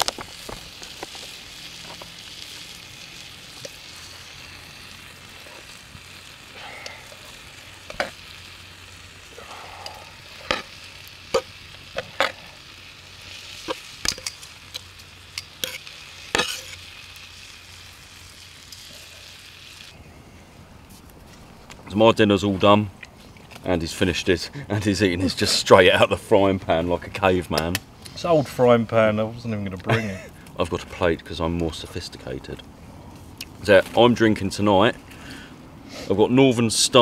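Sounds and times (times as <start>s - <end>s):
meat sizzling in a frying pan: 0.0s - 20.0s.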